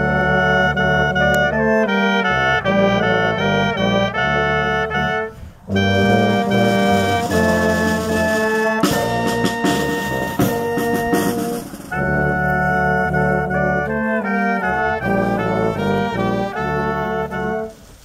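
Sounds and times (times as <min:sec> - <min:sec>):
brass band playing slow chords: 0:00.0 - 0:18.0
drum strokes: 0:05.7 - 0:13.5.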